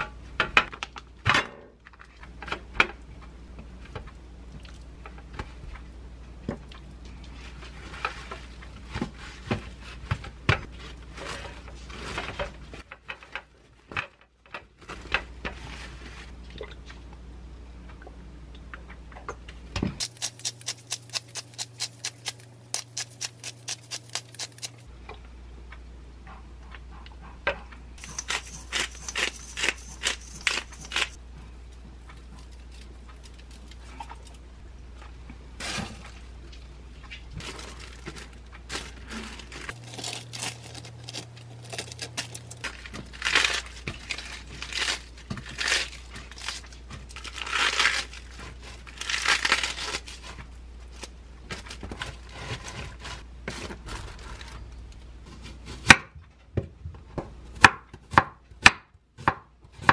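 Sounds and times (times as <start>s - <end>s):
pepper grinder clicking: 20.0s - 24.8s, 28.0s - 31.2s.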